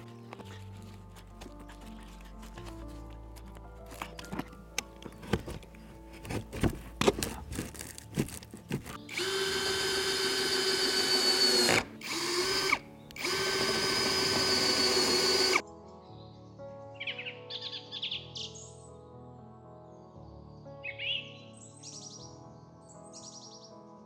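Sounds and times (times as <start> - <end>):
cordless drill driving screw: 8.8 - 15.6.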